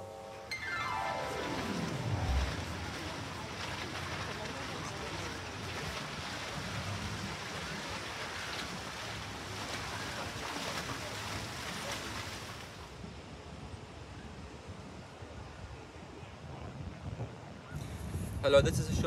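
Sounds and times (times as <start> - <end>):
water lapping on a lake: 0.9 - 15.5
wind on microphone: 13.0 - 19.0.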